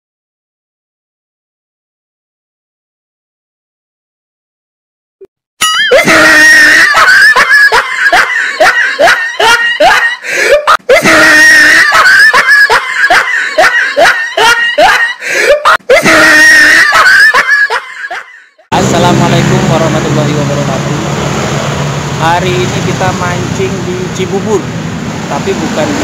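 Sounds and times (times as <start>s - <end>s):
high excited voice crying out: 5.6s - 18.3s.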